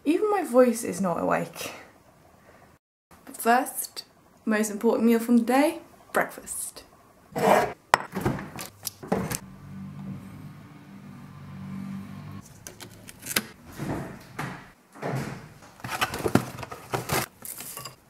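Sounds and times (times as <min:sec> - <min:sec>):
fridge humming: 0:07.3 - 0:17.2.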